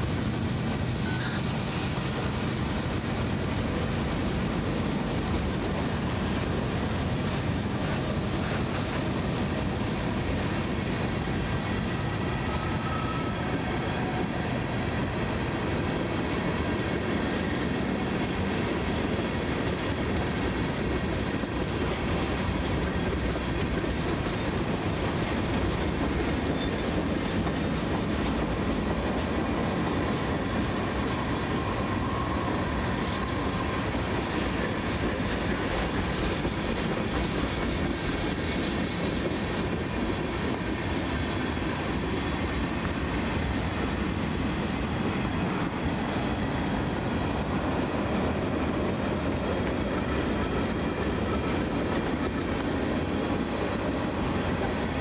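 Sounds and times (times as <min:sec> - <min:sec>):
freight train rumbling past: 0:00.0 - 0:55.0
wheels clicking over rail joints: 0:16.4 - 0:32.2, 0:32.8 - 0:55.0.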